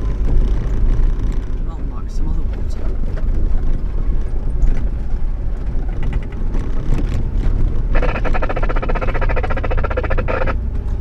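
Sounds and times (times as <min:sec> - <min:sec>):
engine and tyre rumble: 0:00.0 - 0:11.0
dense buzzing rattle: 0:07.9 - 0:10.6.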